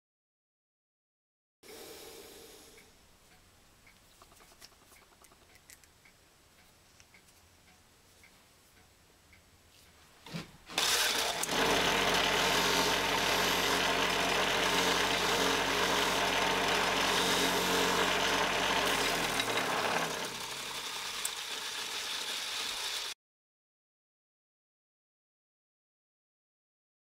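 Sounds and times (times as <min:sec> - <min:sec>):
electric motor humming: 0:10.7 - 0:23.2
metal tool rasping on grinding wheel: 0:10.8 - 0:23.1.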